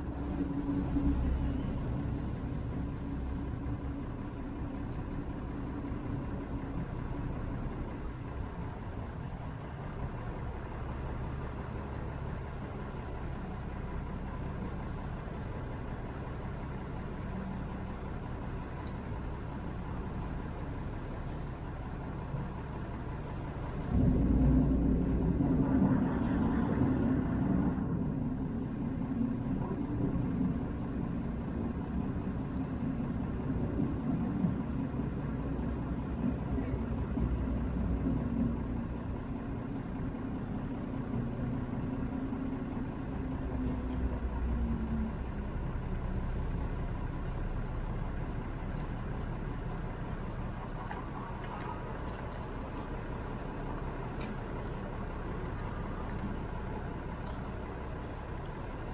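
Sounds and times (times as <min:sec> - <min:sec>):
boat engine rumbling: 0:00.0 - 0:58.9.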